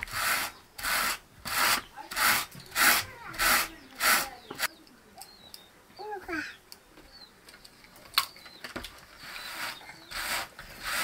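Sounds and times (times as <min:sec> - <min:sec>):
hand carder strokes through wool: 0:00.0 - 0:04.7, 0:09.2 - 0:11.0.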